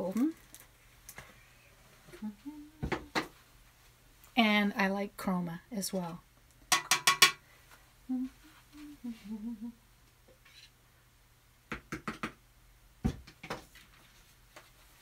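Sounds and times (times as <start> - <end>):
woman humming softly: 1.4 - 3.2, 8.1 - 9.8.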